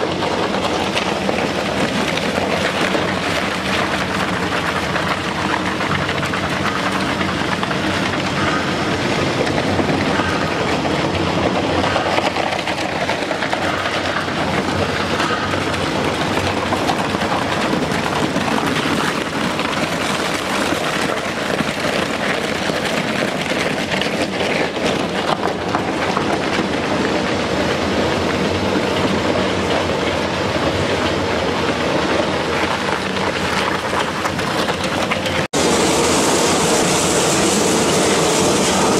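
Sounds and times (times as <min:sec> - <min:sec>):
clatter: 0:00.0 - 0:38.9
shredder grinding: 0:32.6 - 0:38.9
low motor hum: 0:35.6 - 0:38.9.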